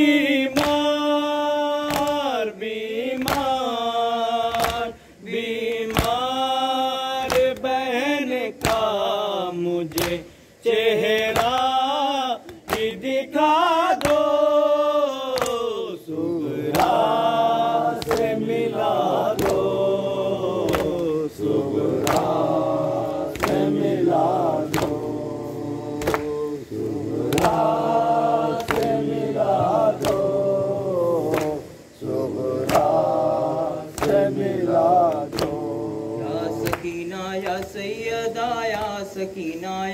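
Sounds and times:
men chanting a lament: 0:00.0 - 0:39.9
hand slaps on chest: 0:00.5 - 0:00.9, 0:01.8 - 0:02.3, 0:03.1 - 0:03.6, 0:04.5 - 0:04.9, 0:05.8 - 0:06.3, 0:08.6 - 0:08.9, 0:09.9 - 0:10.3, 0:14.0 - 0:14.4, 0:15.3 - 0:15.7, 0:16.7 - 0:17.1, 0:18.0 - 0:18.4, 0:19.3 - 0:19.7, 0:20.6 - 0:21.1, 0:22.0 - 0:22.4, 0:23.3 - 0:23.7, 0:24.6 - 0:25.0, 0:26.0 - 0:26.4, 0:27.2 - 0:27.7, 0:28.6 - 0:30.3, 0:31.3 - 0:31.6, 0:32.6 - 0:33.0, 0:33.9 - 0:34.3, 0:35.1 - 0:35.6, 0:36.6 - 0:37.7.

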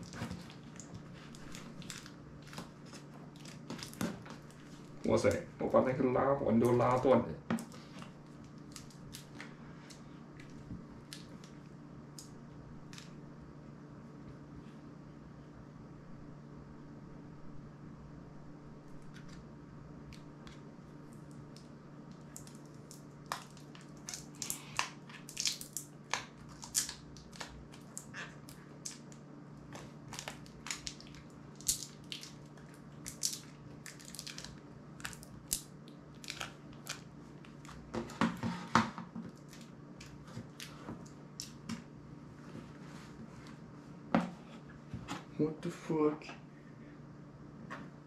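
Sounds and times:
steady low hum: 0:00.0 - 0:48.0.

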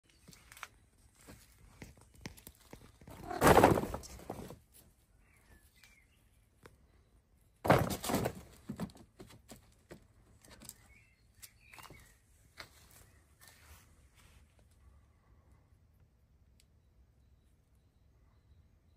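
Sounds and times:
plastic bag rustling and crackling: 0:03.0 - 0:04.5.

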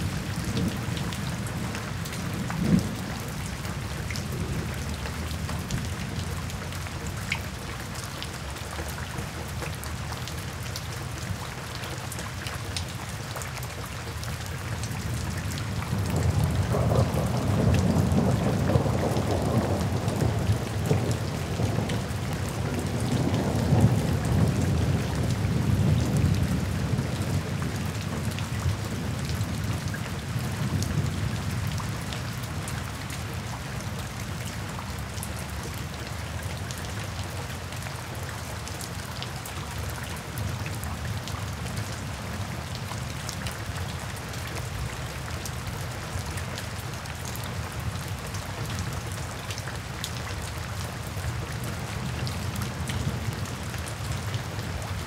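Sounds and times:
steady rain falling: 0:00.0 - 0:55.0
thunder rumbling: 0:16.0 - 0:21.6.

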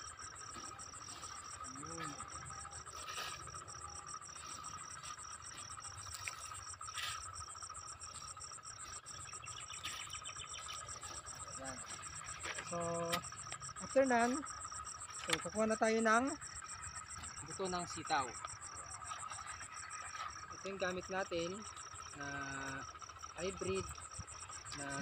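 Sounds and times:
insects chirping: 0:00.0 - 0:25.0
steady high drone: 0:00.0 - 0:25.0
shovel scraping dry soil: 0:03.0 - 0:03.7.

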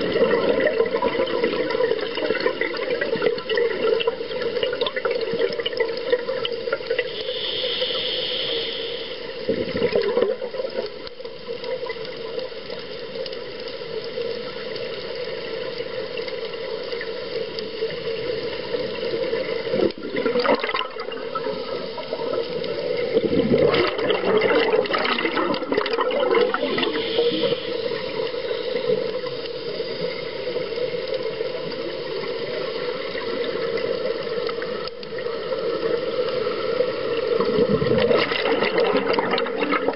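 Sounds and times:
scuba exhalation bubbles rushing: 0:00.0 - 0:07.5, 0:09.4 - 0:11.0, 0:18.4 - 0:29.3, 0:32.7 - 0:39.9
steady underwater hum: 0:00.0 - 0:39.9.

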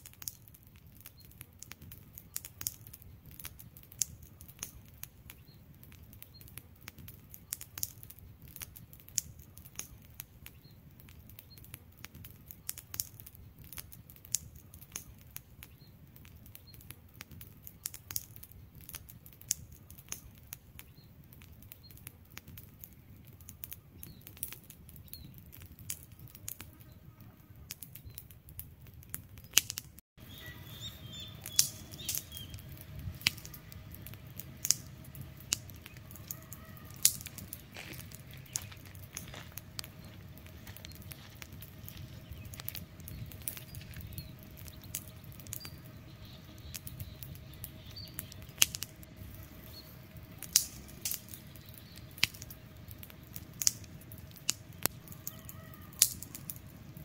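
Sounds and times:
campfire crackling and popping: 0:00.0 - 0:57.0
low steady rumble: 0:30.2 - 0:57.0.

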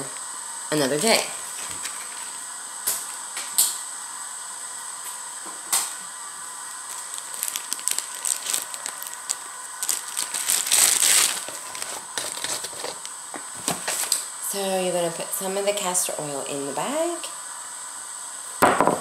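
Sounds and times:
plastic bag crinkling: 0:06.7 - 0:13.1.

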